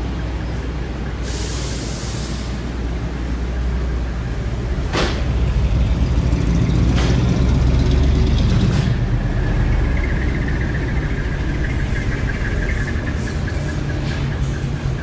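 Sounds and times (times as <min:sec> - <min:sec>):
engine idling: 0:03.2 - 0:15.0.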